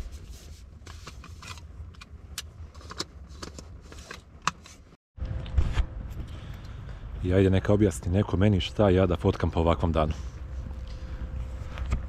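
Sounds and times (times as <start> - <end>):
low rumble inside car: 5.2 - 12.0.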